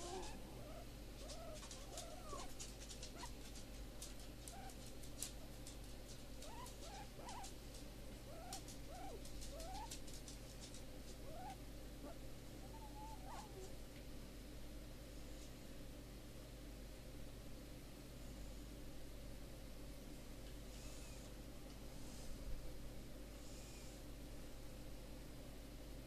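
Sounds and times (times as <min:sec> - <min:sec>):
guinea pig squeaking: 0:00.0 - 0:03.6, 0:04.4 - 0:05.4, 0:06.4 - 0:07.5, 0:08.3 - 0:10.1, 0:11.2 - 0:13.7.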